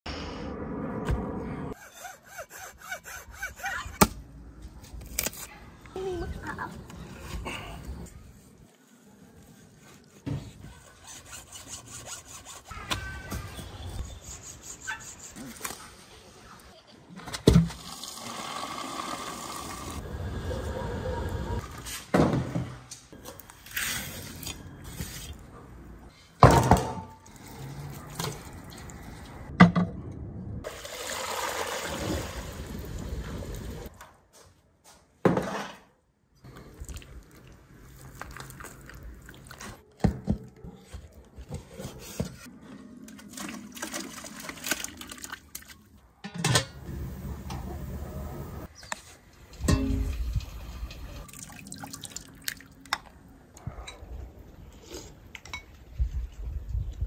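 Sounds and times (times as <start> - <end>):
water pouring into a metal pot: 30.7 - 32.9, 50.9 - 52.8.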